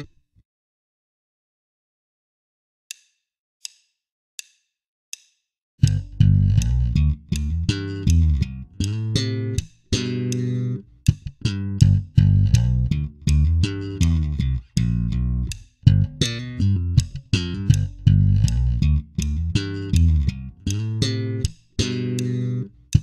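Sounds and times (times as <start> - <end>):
count-in clicks: 5.8 - 12.0
slapped electric bass funk line: 5.8 - 23.0.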